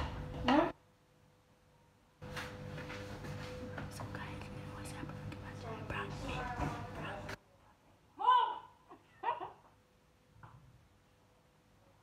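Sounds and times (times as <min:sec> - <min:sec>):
steady low hum: 0:02.2 - 0:07.4.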